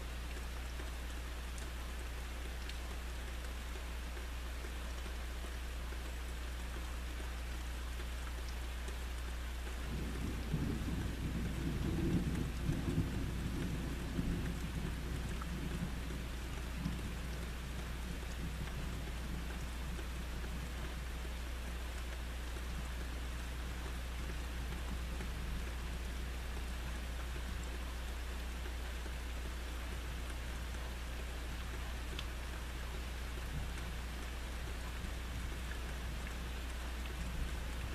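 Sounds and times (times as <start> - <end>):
steady rain falling: 0.0 - 37.9
low rumble of thunder: 9.8 - 21.1, 33.4 - 37.9.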